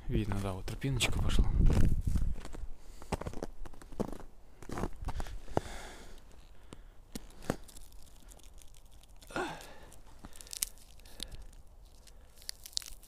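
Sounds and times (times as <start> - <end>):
footsteps crunching on snow: 0.2 - 8.6
pine cone crackling: 6.1 - 13.0.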